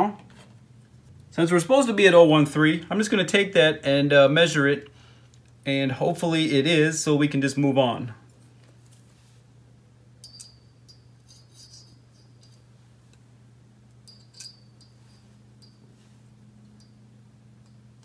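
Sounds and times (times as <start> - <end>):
low steady hum: 0.0 - 18.0
feeler gauge blades clinking: 10.2 - 12.8, 13.9 - 18.0.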